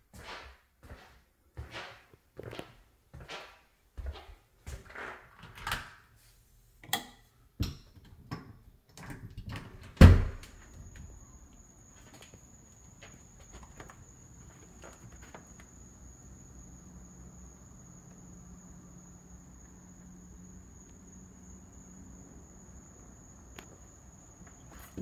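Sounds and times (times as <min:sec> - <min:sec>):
footsteps on hard floor: 0:00.0 - 0:04.9, 0:12.0 - 0:15.7
door thumping open: 0:09.4 - 0:11.1
crickets trilling: 0:10.0 - 0:25.0.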